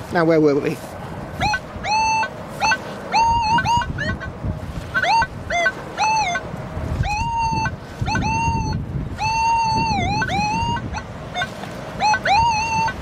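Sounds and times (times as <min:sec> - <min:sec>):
wind rumble on microphone: 0:00.0 - 0:13.0
metal detector warbling beeps: 0:01.4 - 0:04.3, 0:05.0 - 0:06.4, 0:07.0 - 0:13.0.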